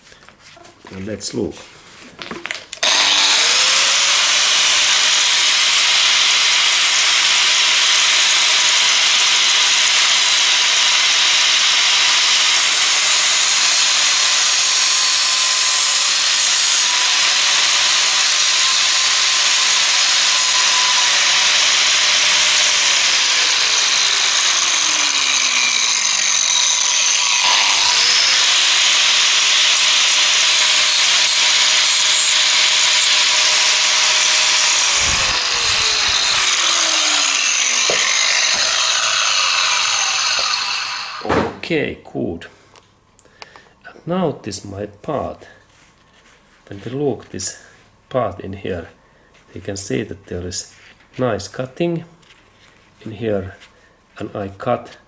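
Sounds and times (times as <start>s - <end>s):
angle grinder cutting plastic: 2.4s - 41.4s.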